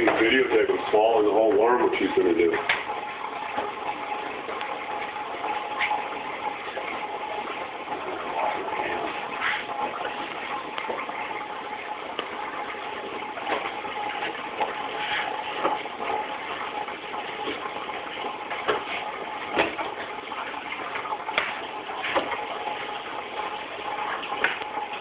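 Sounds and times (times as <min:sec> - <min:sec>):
water splashing and gurgling: 0:00.0 - 0:25.0
small clicks and splashes: 0:17.3 - 0:25.0.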